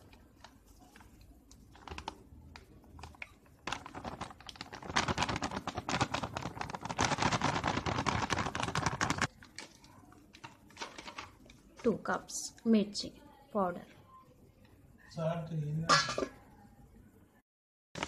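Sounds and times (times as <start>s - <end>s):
plastic packet crinkling: 0.0s - 11.8s
powder pouring crackle: 0.0s - 11.8s.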